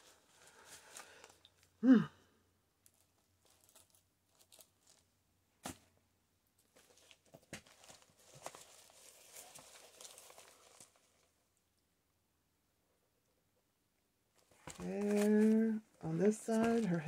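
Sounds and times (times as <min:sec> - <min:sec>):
paper pages rustling: 0:02.9 - 0:05.8, 0:06.7 - 0:11.3, 0:14.4 - 0:17.0.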